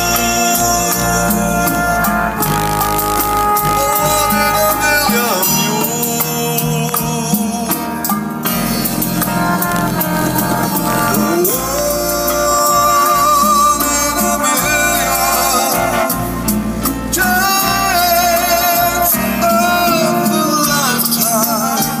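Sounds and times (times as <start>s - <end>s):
song through car speakers: 0.0s - 22.0s.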